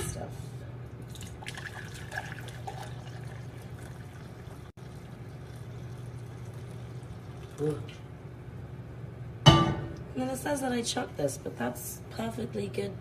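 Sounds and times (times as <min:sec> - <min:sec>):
liquid pouring into a jug: 0:01.1 - 0:08.0.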